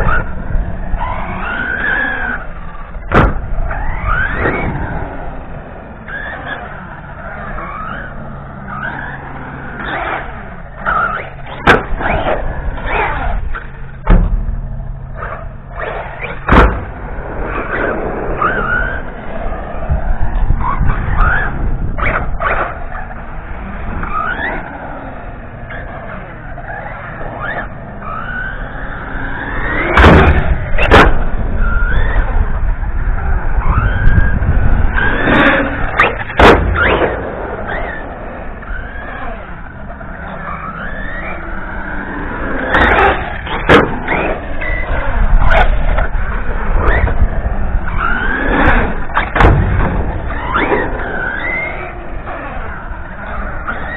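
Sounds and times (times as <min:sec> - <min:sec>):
rc car motor revving: 0:00.0 - 0:53.9
rc car landing knocks: 0:03.0 - 0:03.5, 0:16.2 - 0:16.9, 0:29.8 - 0:31.2, 0:35.0 - 0:37.9, 0:48.5 - 0:50.8.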